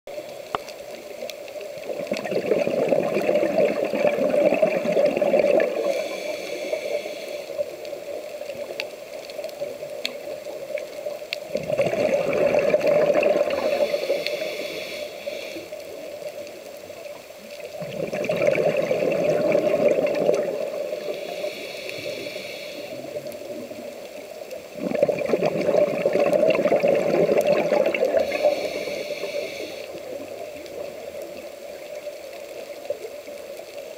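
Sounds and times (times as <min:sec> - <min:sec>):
gurgling exhaled bubbles: 0:01.7 - 0:06.2, 0:11.5 - 0:14.2, 0:17.5 - 0:21.3, 0:24.6 - 0:31.9
regulator inhale hiss: 0:05.6 - 0:08.5, 0:13.4 - 0:16.4, 0:20.5 - 0:23.5, 0:28.0 - 0:31.2.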